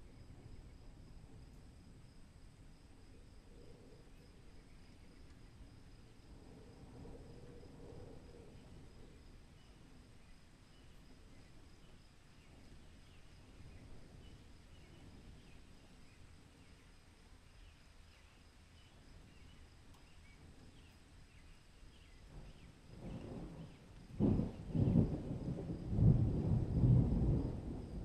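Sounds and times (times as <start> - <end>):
low rumble of thunder: 0.0 - 28.0.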